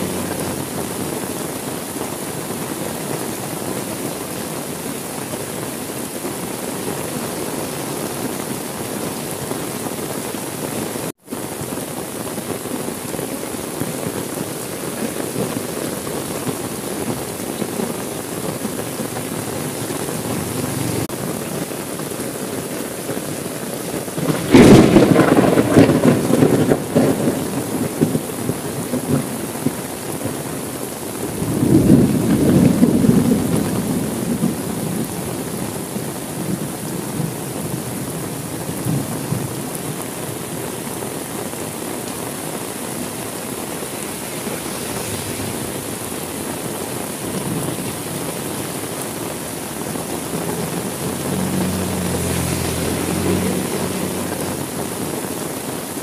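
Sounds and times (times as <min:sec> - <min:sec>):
heavy rain: 0:00.0 - 0:56.0
thunder rumbling: 0:15.3 - 0:21.2, 0:24.1 - 0:29.8, 0:31.3 - 0:35.3, 0:43.0 - 0:55.2.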